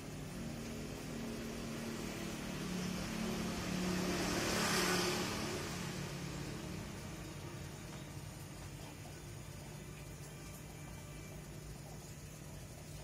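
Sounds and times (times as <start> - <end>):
vehicle engine passing by: 0.0 - 9.7.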